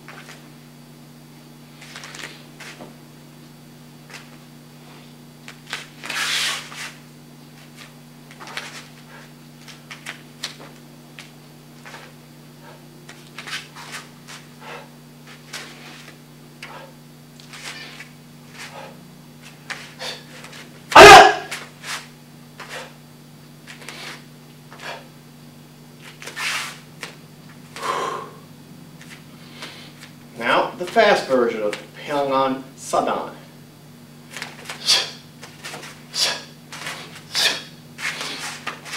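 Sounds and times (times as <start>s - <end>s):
bare feet on foam mats: 0.0s - 0.5s, 1.7s - 3.0s, 4.0s - 23.0s, 23.6s - 25.0s, 26.0s - 28.0s, 29.0s - 30.2s, 34.2s - 38.9s
steady low hum: 0.0s - 38.9s
uniform swishing and rustling: 5.6s - 7.0s, 7.6s - 9.0s, 13.1s - 14.5s, 21.5s - 22.9s, 26.0s - 26.8s, 38.0s - 38.9s
person breathing: 27.8s - 28.4s, 29.3s - 30.1s.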